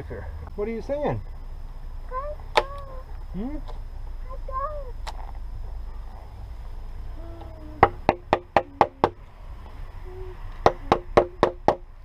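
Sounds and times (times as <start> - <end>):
stick knocking on wood: 10.6 - 11.8.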